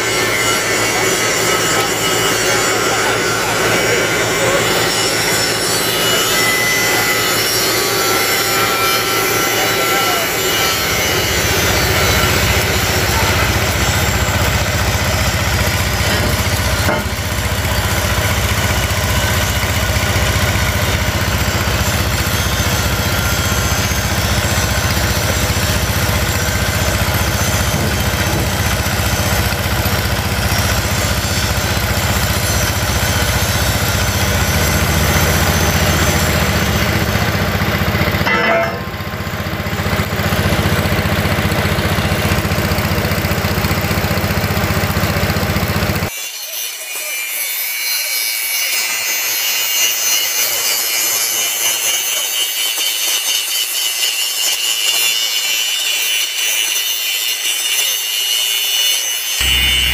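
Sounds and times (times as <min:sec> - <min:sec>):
thin whining tones: 0:00.0 - 0:39.7, 0:59.4 - 0:59.9
engine running: 0:00.0 - 0:46.1, 0:59.4 - 0:59.9
metal repair work: 0:00.0 - 0:59.9.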